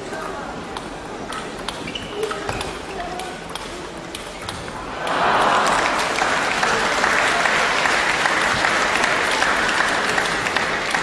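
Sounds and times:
spectators applauding: 5.0 - 11.0.

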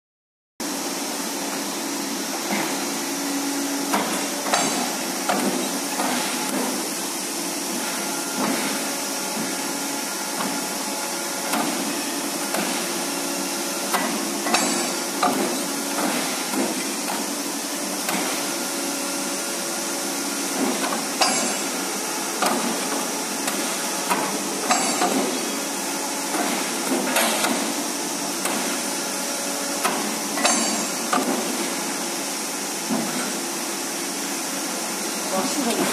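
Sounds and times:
hydraulic drive humming: 1.5 - 34.4
metallic clanks and knocks: 24.1 - 25.4, 29.8 - 31.5.

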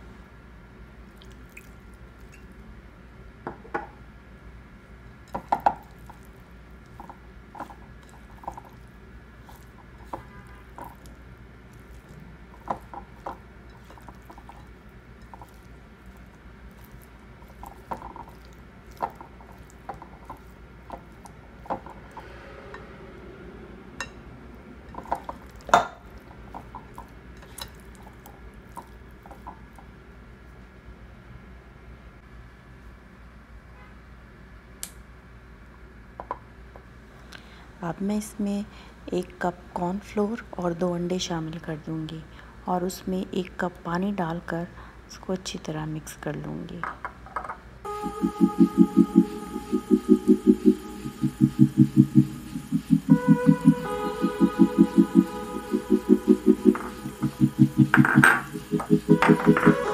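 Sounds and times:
low steady hum: 0.0 - 33.4, 47.8 - 59.9.

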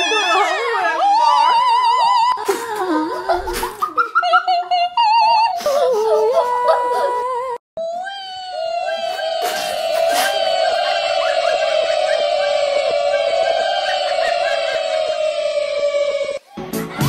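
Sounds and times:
operatic singing voice with vibrato: 4.6 - 16.5.

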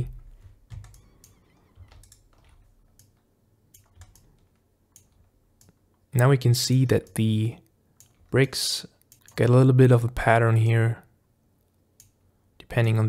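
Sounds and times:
keyboard keystrokes: 0.4 - 5.8.

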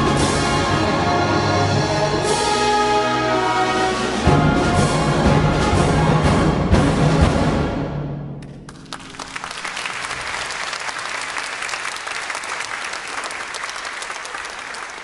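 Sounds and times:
audience applause: 8.7 - 15.0.

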